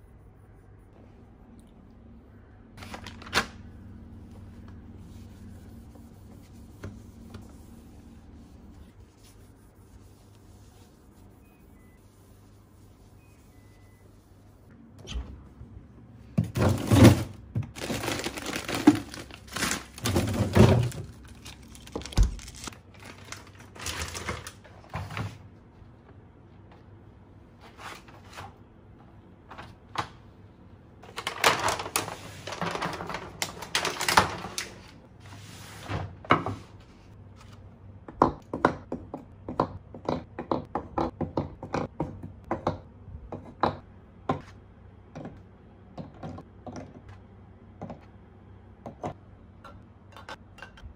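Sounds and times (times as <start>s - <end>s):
fridge door and drawers thunking: 16.4s - 21.2s.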